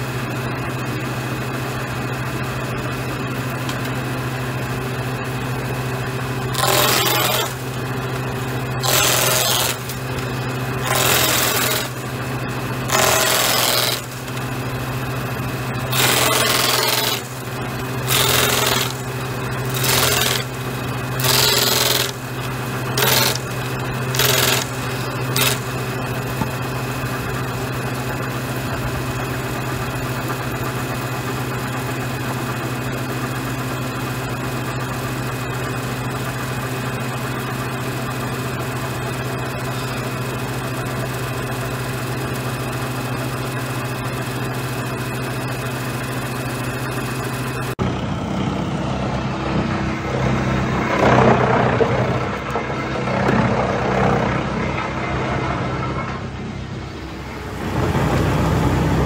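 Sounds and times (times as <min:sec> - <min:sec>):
spinning cutter disc hum: 0:00.0 - 0:59.0
cutter cutting wooden post: 0:06.4 - 0:28.4.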